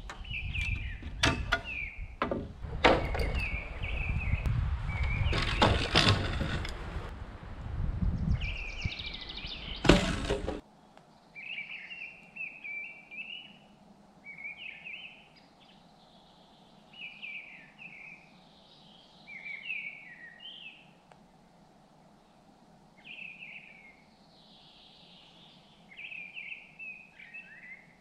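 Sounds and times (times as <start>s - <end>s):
songbirds chirping: 0.0s - 7.1s, 8.1s - 28.0s
loud thump: 9.8s - 10.6s.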